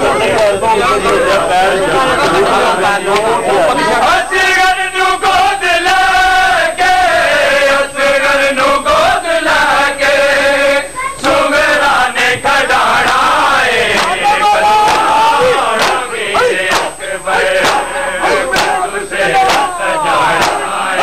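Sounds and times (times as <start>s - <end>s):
man chanting a lament: 12.8s - 21.0s
chest-beating slaps: 13.1s - 13.3s, 13.9s - 14.2s, 14.8s - 18.8s, 19.4s - 20.8s.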